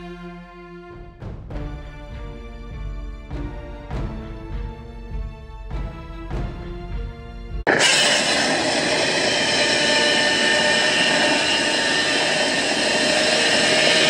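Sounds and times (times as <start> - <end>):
loud steady rushing noise: 7.7 - 14.0.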